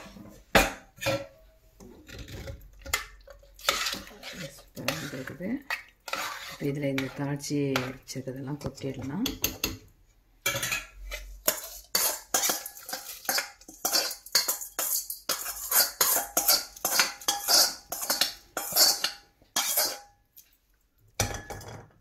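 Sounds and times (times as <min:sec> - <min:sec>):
metal spoon clinking and scraping: 0:02.1 - 0:07.2, 0:10.4 - 0:20.2.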